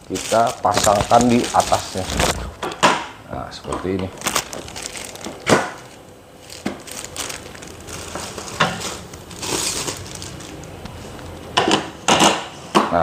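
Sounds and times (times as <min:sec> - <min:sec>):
plastic wrapping crinkling: 0:00.0 - 0:02.7, 0:04.0 - 0:11.5.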